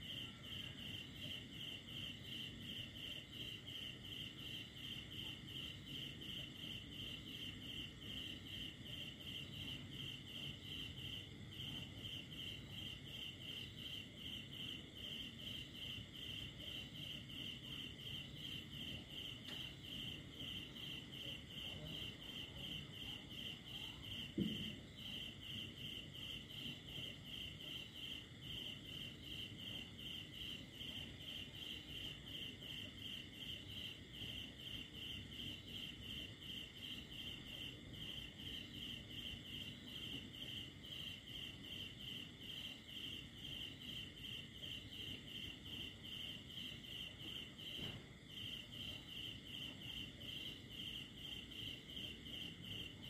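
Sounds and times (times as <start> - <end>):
cricket chirping: 0.0 - 53.0
low thump: 24.4 - 24.8.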